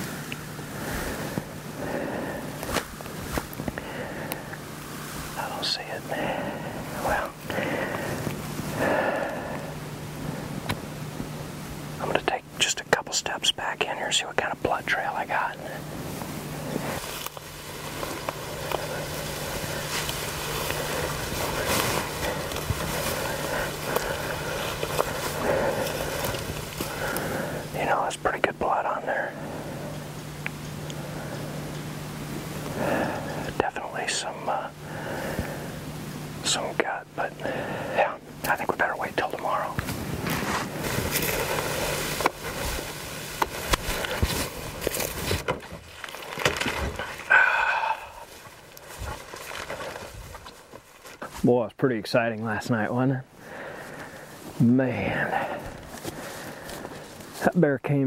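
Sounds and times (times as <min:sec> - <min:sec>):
steady low hum: 0:00.0 - 0:58.0
footsteps through undergrowth: 0:02.5 - 0:03.8, 0:15.9 - 0:27.7, 0:39.4 - 0:51.5, 0:55.2 - 0:57.6
twigs snapping: 0:02.6 - 0:04.6, 0:16.8 - 0:27.6, 0:39.3 - 0:47.7
brush rustling against clothing: 0:15.9 - 0:28.1, 0:38.8 - 0:47.3, 0:48.2 - 0:51.5
boots on leaf litter: 0:16.2 - 0:27.7, 0:39.6 - 0:51.5.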